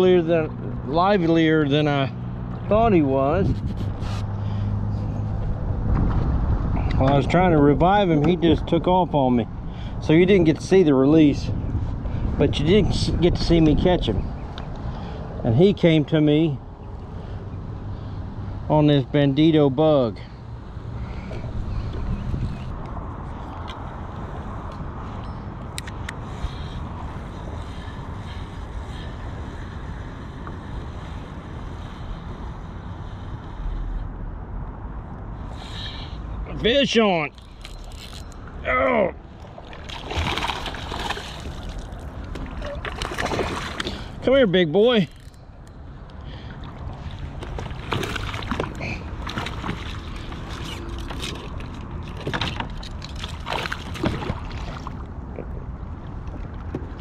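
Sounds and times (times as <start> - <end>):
wind buffeting microphone: 2.7 - 14.9, 20.9 - 25.6
water splashing: 39.3 - 44.2, 46.5 - 55.7.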